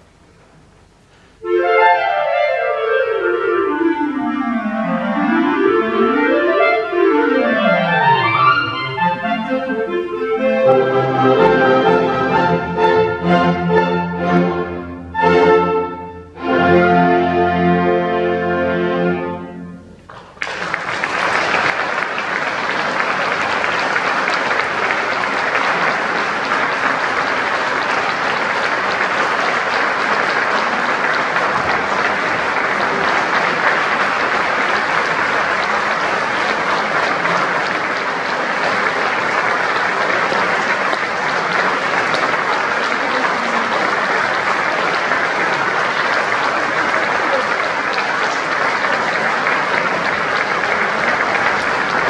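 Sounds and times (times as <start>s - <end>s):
audience applause: 4.0s - 13.2s, 20.0s - 52.0s.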